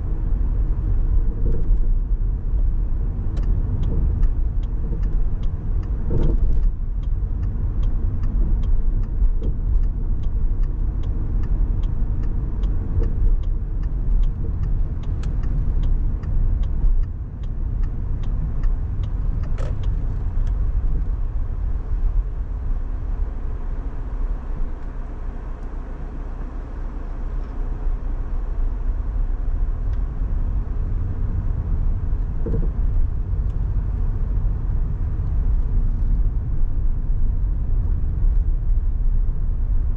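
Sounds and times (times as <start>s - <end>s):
car engine and road noise: 0.0s - 39.9s
light fast ticking: 3.3s - 21.1s.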